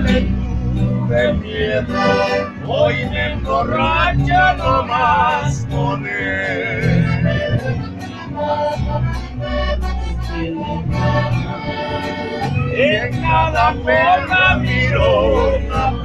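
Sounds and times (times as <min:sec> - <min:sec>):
man singing: 0:00.0 - 0:07.6, 0:12.6 - 0:16.0
guitar strumming: 0:00.0 - 0:16.0.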